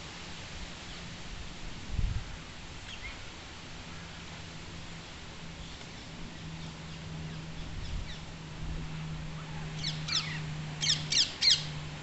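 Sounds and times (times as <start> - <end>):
steady low hum: 0.0 - 12.0
parakeets screeching: 9.3 - 11.8.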